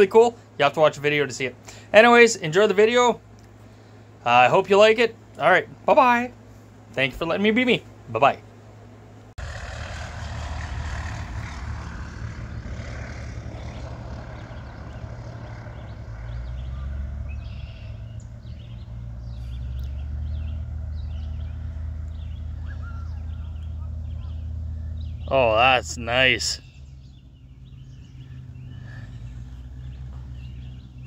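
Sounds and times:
distant propeller plane droning: 0.0s - 31.0s
steady low rumble: 9.3s - 31.0s.

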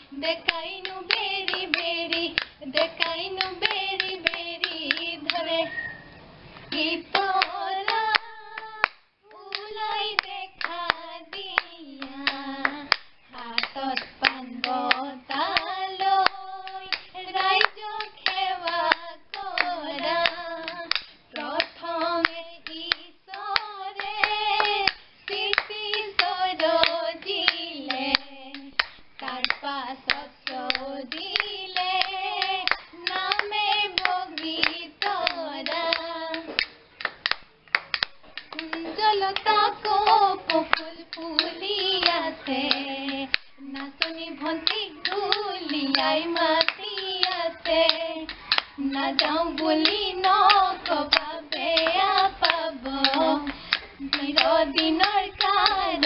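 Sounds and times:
hand claps: 0.0s - 5.6s, 6.6s - 56.0s
bamboo clapper clacking: 0.0s - 5.8s, 6.7s - 56.0s
women singing folk song: 0.0s - 56.0s.

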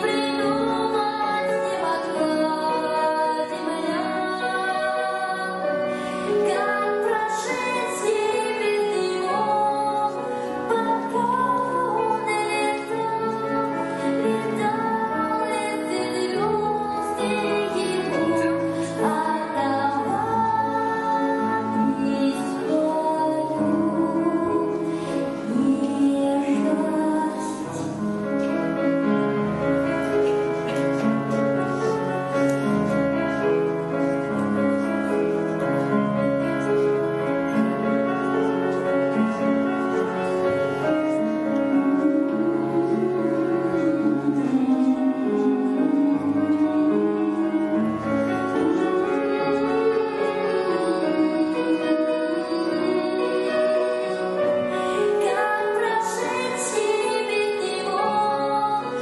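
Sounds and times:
woman singing: 0.0s - 28.4s, 40.8s - 59.0s
grand piano: 0.0s - 59.0s.

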